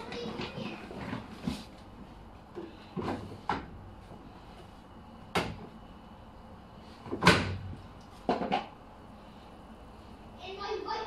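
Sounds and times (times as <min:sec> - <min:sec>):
washing machine door clunks: 0:07.1 - 0:07.7.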